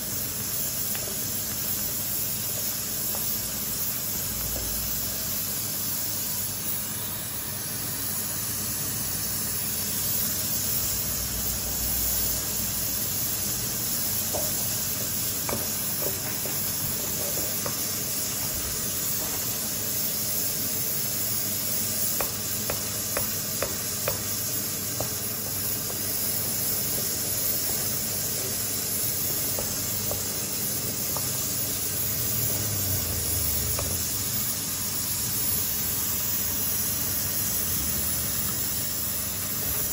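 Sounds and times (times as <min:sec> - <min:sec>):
pressure cooker hissing: 0:00.0 - 0:39.9
wooden spoon knocking steel pot: 0:14.3 - 0:14.7, 0:15.4 - 0:17.9, 0:22.2 - 0:24.3.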